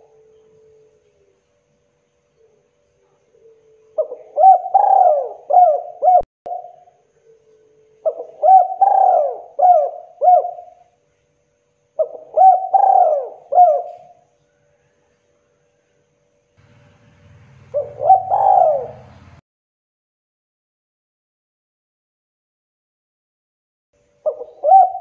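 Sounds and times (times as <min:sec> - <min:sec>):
dove cooing: 0:02.4 - 0:10.9, 0:12.0 - 0:14.2, 0:16.8 - 0:19.4, 0:24.2 - 0:25.0.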